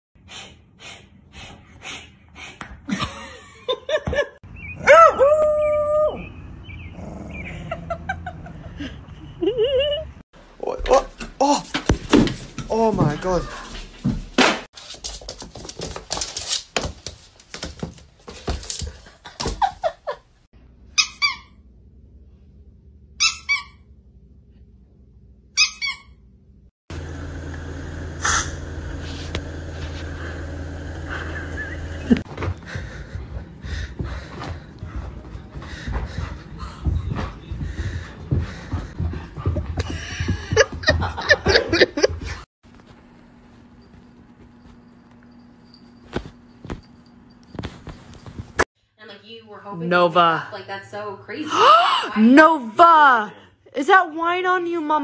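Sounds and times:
dog yelping and howling: 0:04.8 - 0:06.3
squeaky dog toy squeaks: 0:20.9 - 0:21.6, 0:23.2 - 0:23.8, 0:25.6 - 0:26.2
dog whining: 0:25.6 - 0:26.2.

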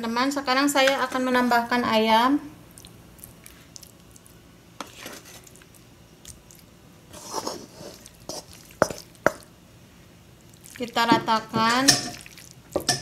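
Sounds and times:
food squishing in baking dish: 0:02.7 - 0:09.5, 0:10.4 - 0:13.0.

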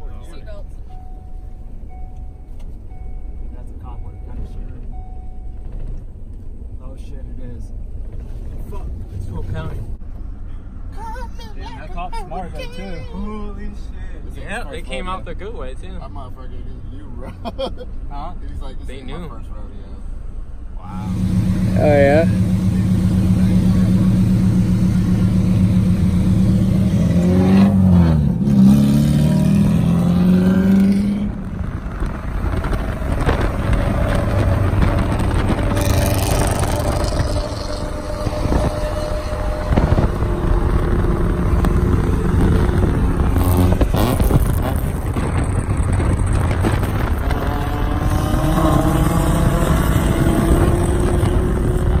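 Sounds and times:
road and engine noise: 0:00.0 - 0:52.0
car engines revving: 0:11.8 - 0:52.0.

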